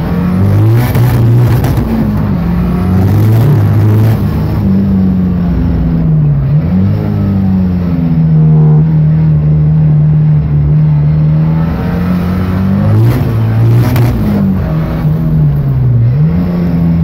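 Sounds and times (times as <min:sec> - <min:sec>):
race car engine under load: 0:00.0 - 0:17.0
engine sharp cracks: 0:00.5 - 0:04.7.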